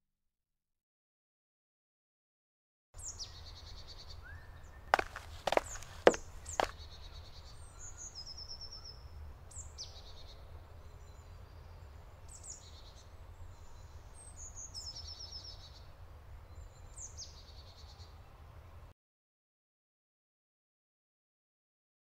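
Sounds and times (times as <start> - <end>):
songbirds singing: 3.0 - 18.4
short knock: 5.0 - 6.7.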